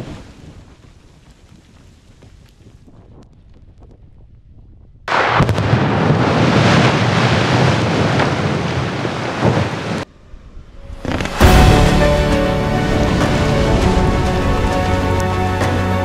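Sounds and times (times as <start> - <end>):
explosive rock blast: 5.1 - 8.8, 10.9 - 15.2
falling rock rumbling: 10.9 - 15.3.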